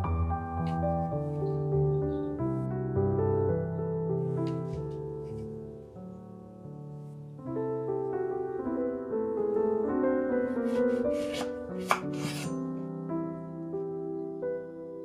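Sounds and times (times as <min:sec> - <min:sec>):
soft piano music: 0:00.0 - 0:15.0
kitchen handling noises: 0:10.7 - 0:12.6.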